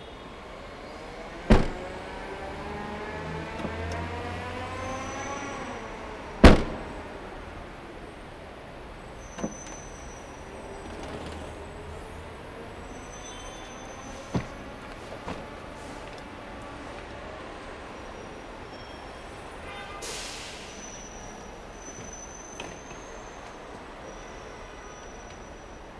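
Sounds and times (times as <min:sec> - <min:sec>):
vehicle engine: 0:00.8 - 0:07.2
car tailgate slamming: 0:01.5 - 0:01.9, 0:06.4 - 0:06.9, 0:14.2 - 0:15.5.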